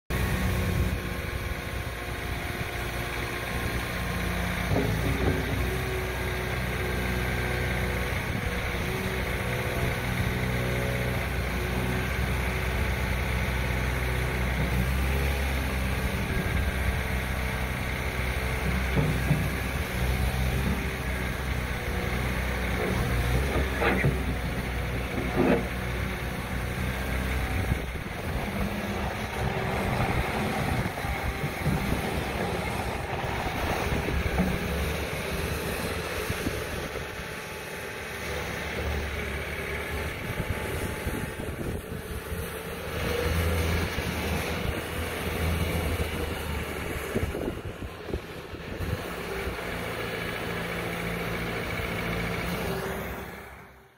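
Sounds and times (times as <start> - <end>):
diesel engine running: 0.1 - 53.9.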